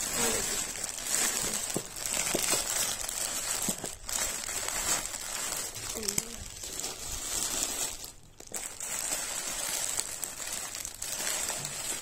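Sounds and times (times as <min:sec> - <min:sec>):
plastic pouches rustling: 0:00.0 - 0:12.0.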